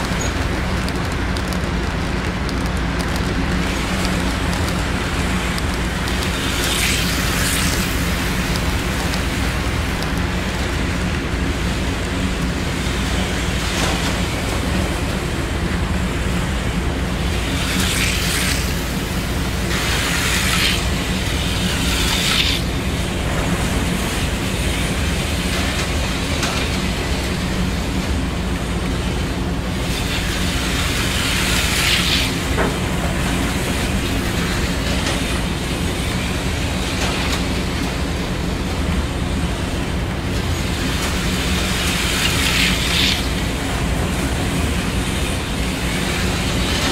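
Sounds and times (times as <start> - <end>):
wheels clicking over rails: 0.0 - 46.9
model train motor hum: 17.0 - 23.2.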